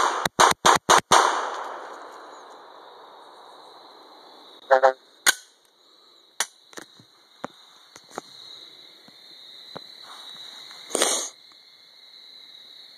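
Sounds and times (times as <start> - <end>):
night insects chirring: 1.2 - 12.9
pistol metallic clicks: 5.2 - 5.6.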